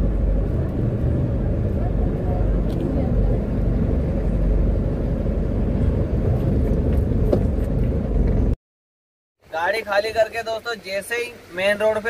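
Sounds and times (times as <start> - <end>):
truck diesel engine rumbling: 0.0 - 8.6.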